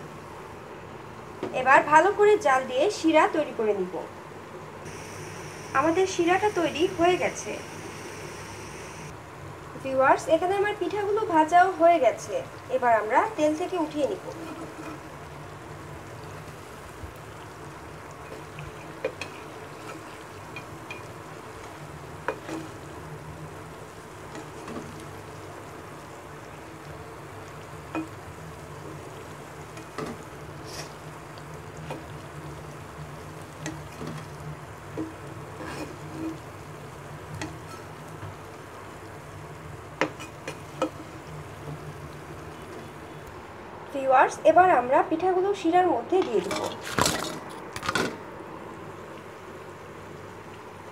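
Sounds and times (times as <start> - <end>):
steady low hum: 0.0 - 33.8
fritters sizzling in hot oil: 4.8 - 43.2
metal spatula scraping pan: 14.3 - 15.0, 35.6 - 36.4.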